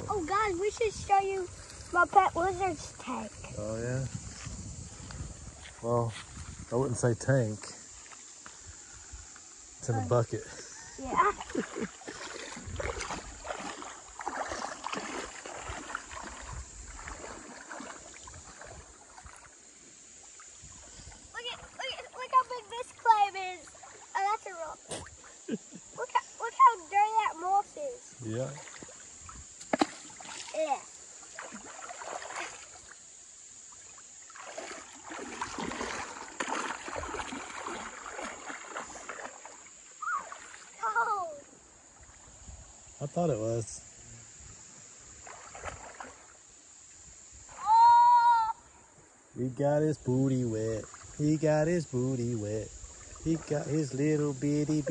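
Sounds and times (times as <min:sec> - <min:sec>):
feet wading through water: 0:00.0 - 0:43.1, 0:44.4 - 0:49.3, 0:50.1 - 0:54.9
hands splashing in water: 0:11.2 - 0:19.6, 0:31.2 - 0:32.8, 0:34.3 - 0:40.7.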